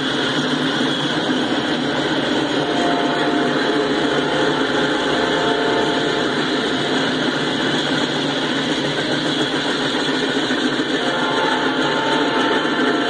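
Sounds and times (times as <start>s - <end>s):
freight cars rumbling on rails: 0.0s - 13.0s.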